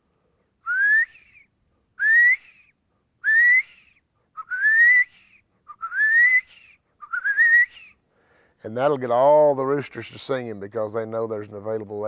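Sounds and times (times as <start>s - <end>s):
man whistling quail call: 0.6s - 8.0s.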